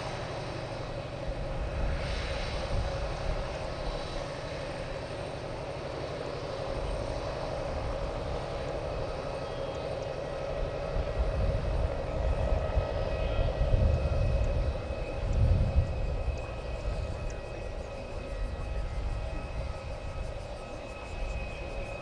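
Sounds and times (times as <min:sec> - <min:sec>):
distant jet engines humming: 0:00.0 - 0:22.0.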